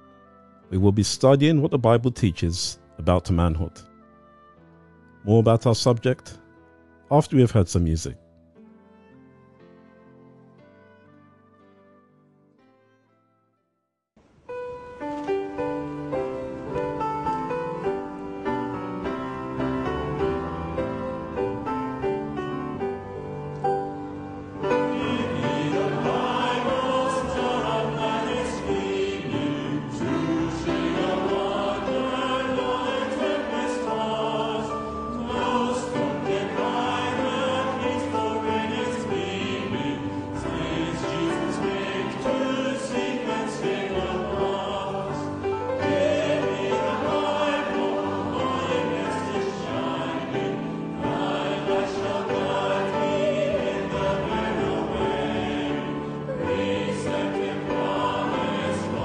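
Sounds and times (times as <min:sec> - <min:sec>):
choir singing sustained chords: 0:15.6 - 0:59.0.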